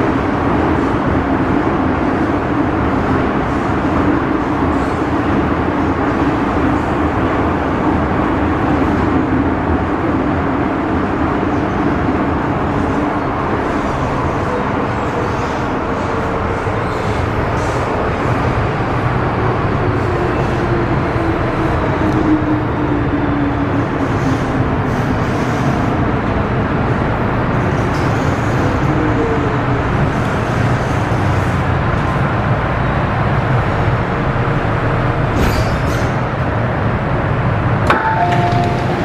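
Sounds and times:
train rumble and rail noise: 0.0s - 39.0s
two-tone electronic chime: 38.0s - 39.0s.

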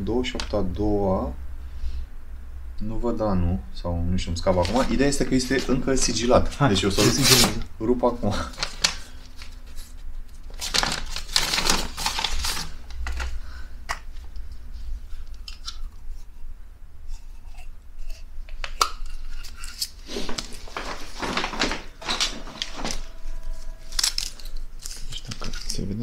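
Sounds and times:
paper tearing and crinkling: 4.5s - 7.6s, 8.4s - 13.4s, 19.4s - 26.0s.

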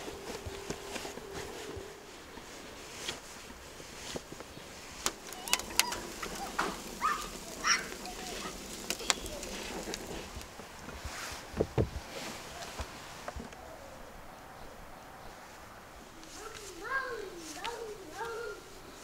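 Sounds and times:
wood fire crackling and snapping: 0.0s - 13.6s
birds calling: 4.4s - 10.8s.

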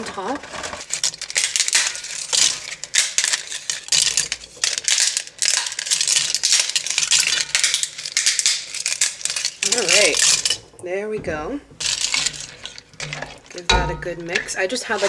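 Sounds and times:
dry noodles snapping: 0.8s - 10.7s.

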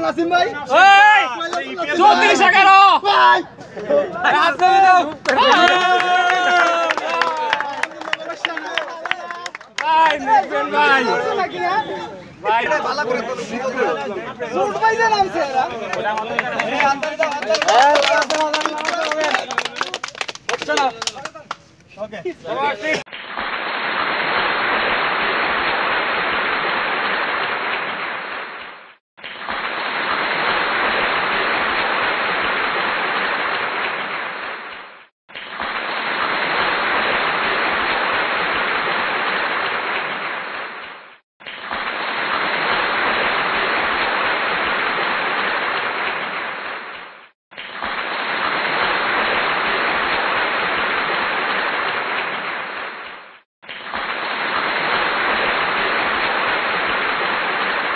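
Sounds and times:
hands clapping: 1.4s - 1.7s, 4.4s - 10.9s, 15.8s - 21.9s.

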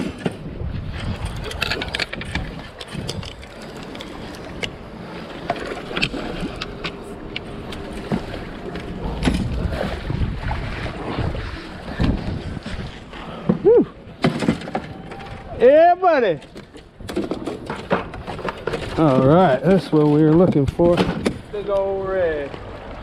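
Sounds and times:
fishing gear clicks and knocks: 0.0s - 4.8s, 16.4s - 21.9s
wind and water rumble: 0.0s - 23.0s.

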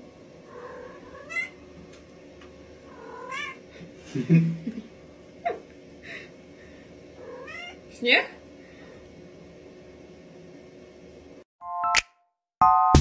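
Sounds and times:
cat meowing: 0.6s - 1.6s, 2.9s - 3.6s, 7.2s - 7.8s.

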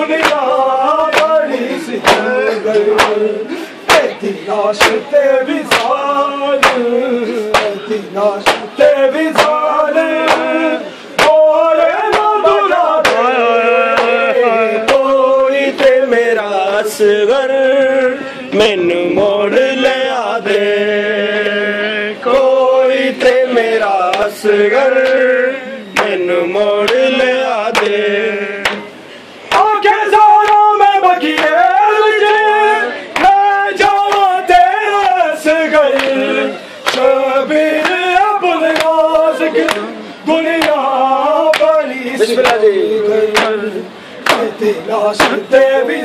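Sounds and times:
men chanting in chorus: 0.0s - 28.9s, 29.5s - 46.0s
hands slapping chests: 1.1s - 1.4s, 44.2s - 44.5s.

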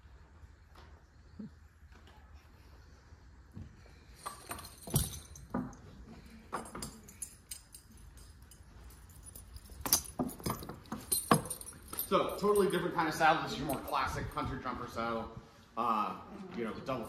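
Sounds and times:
metal horse tack clinking: 4.1s - 14.5s.

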